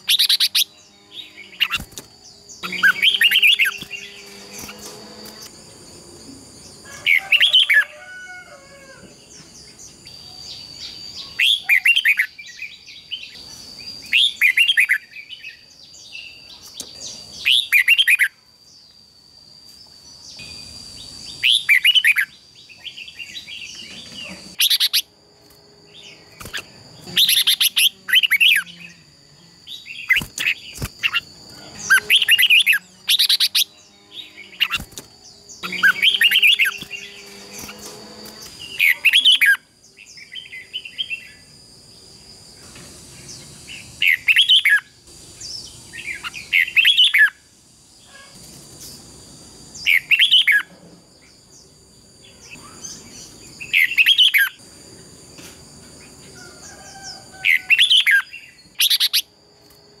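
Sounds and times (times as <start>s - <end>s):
bird singing warbled phrases: 0.0s - 5.4s, 9.6s - 18.9s, 21.0s - 25.1s, 26.0s - 41.5s, 43.2s - 47.4s, 49.8s - 50.7s, 52.3s - 54.6s, 57.5s - 59.3s
thin steady high tone: 9.6s - 23.7s.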